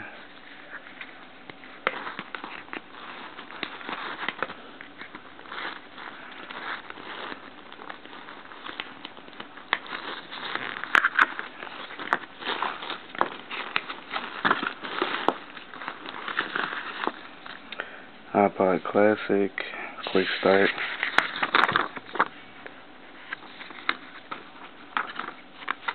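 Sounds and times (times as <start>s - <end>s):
cardboard packaging rustling: 0.3s - 17.7s, 20.0s - 25.9s.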